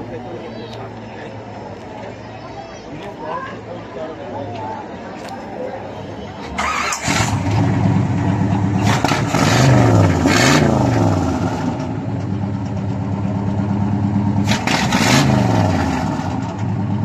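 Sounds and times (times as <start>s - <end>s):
car engine idling and revving: 6.6s - 17.0s.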